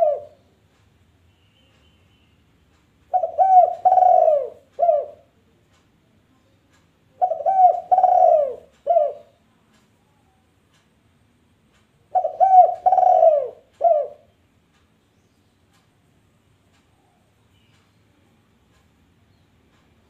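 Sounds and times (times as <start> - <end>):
dove cooing: 0.0 - 0.4, 3.1 - 5.3, 7.2 - 9.4, 12.1 - 14.3.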